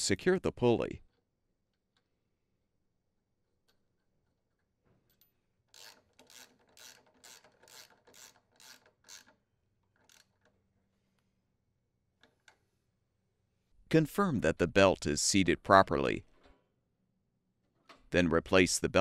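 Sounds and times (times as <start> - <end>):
ratchet rasping: 5.7 - 10.6.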